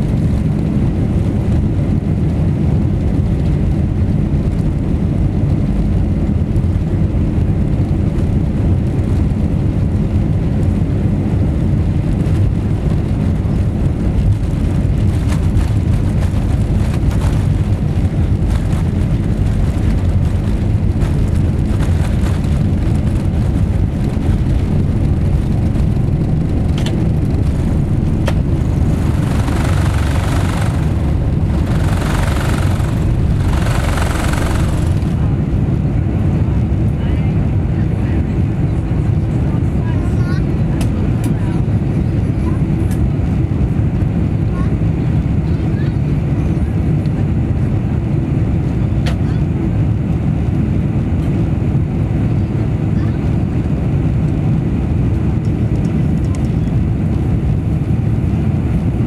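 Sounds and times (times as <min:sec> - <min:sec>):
jet cabin rumble: 0:00.0 - 0:59.0
faint rattles: 0:14.3 - 0:35.4.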